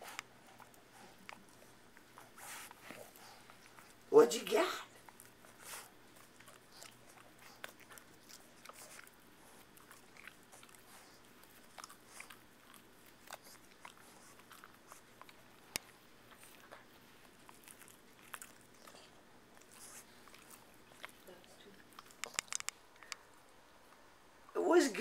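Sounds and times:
dog chewing plush toy: 0:04.9 - 0:23.3.

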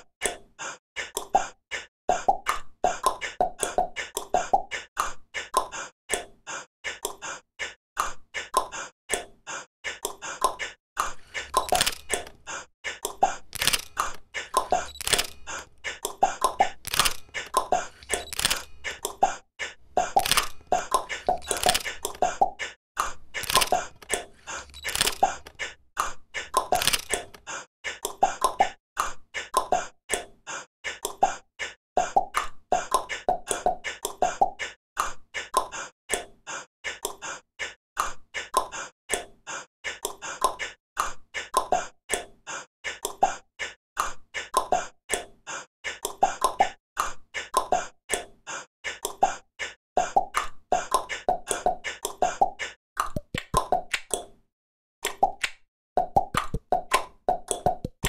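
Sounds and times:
beatbox clicks and pops: 0:02.2 - 0:04.6, 0:11.4 - 0:12.4, 0:20.1 - 0:22.2, 0:50.1 - 0:54.3, 0:55.0 - 0:58.0.

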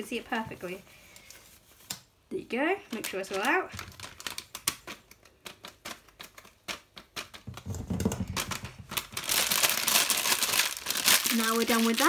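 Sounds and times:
plastic packet crackling: 0:02.8 - 0:12.0
plastic packet crinkling: 0:02.8 - 0:12.0.

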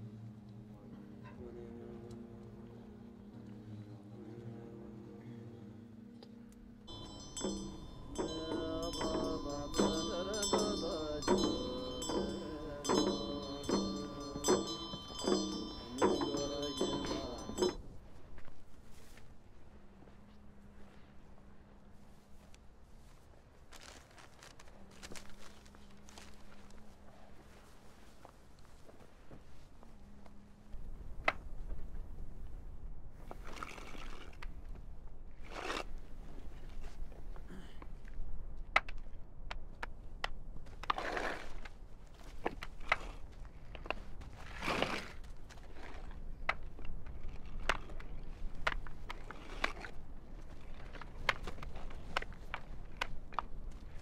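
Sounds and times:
bells ringing: 0:06.9 - 0:18.0
body scraping over gravel: 0:22.2 - 0:29.6, 0:40.9 - 0:46.4.

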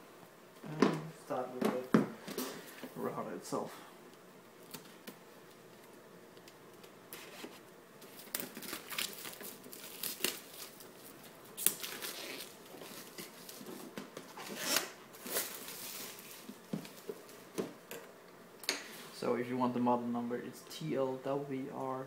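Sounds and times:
plastic wrapping crinkling and tearing: 0:07.1 - 0:17.4.

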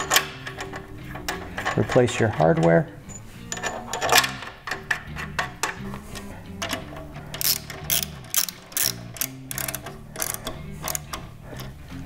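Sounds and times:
hand ratchet clicking: 0:00.0 - 0:02.9, 0:03.5 - 0:11.8.

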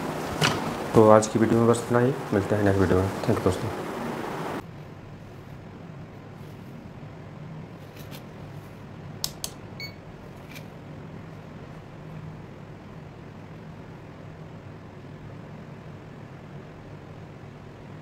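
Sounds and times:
steady low hum: 0:00.0 - 0:18.0
short electronic beep: 0:09.8 - 0:10.0.

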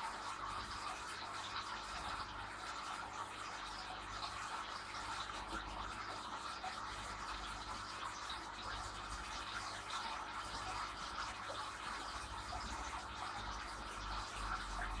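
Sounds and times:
aquarium filter water bubbling: 0:00.0 - 0:15.0
faint drip-like ticks: 0:00.0 - 0:15.0.

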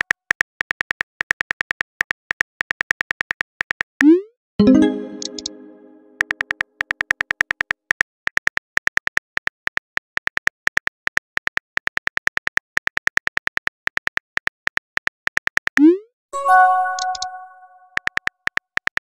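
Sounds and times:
keyboard clicks: 0:04.0 - 0:06.6, 0:16.4 - 0:18.3
chime tones: 0:04.6 - 0:06.2, 0:16.4 - 0:18.0.

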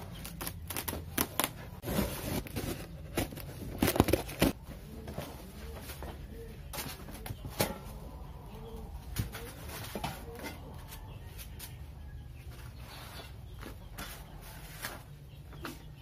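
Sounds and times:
cardboard and metal panels handled: 0:00.8 - 0:07.9.

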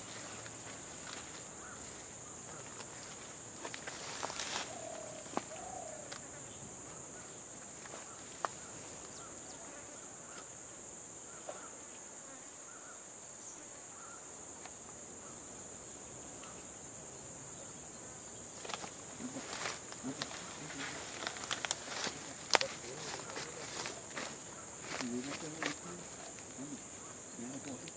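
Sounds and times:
high-pitched insect chorus: 0:00.0 - 0:27.9
higher insect drone: 0:00.0 - 0:27.9
rustling: 0:18.6 - 0:26.8.

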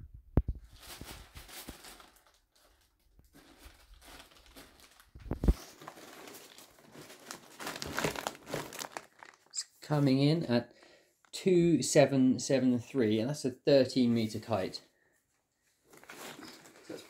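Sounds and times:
fabric bag rustling: 0:00.7 - 0:09.5, 0:15.8 - 0:17.0.

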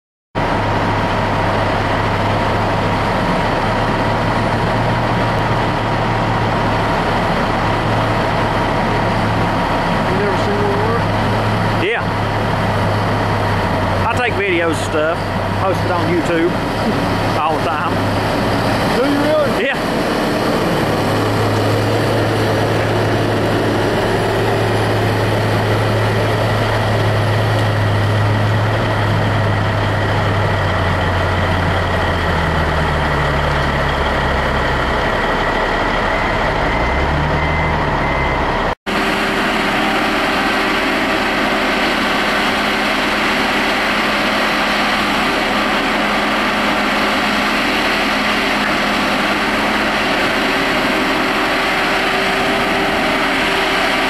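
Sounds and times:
heavy diesel engine running: 0:00.4 - 0:54.0
loader diesel engine running steadily: 0:00.4 - 0:54.0.

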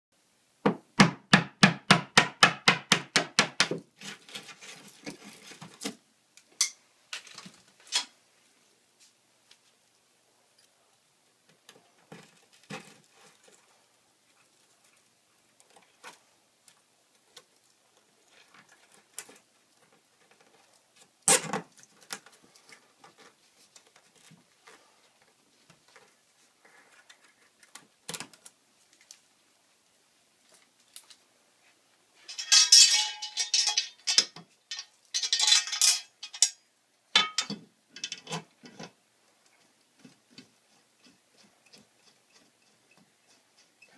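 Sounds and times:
metal bracket clattering: 0:32.2 - 0:36.6, 0:37.2 - 0:38.4.

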